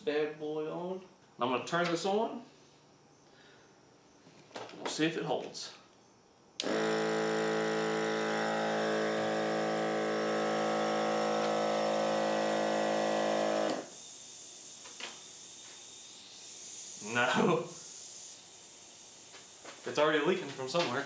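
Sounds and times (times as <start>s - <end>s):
air pump buzzing hum: 6.6s - 21.0s
air hissing from tire: 13.8s - 20.7s.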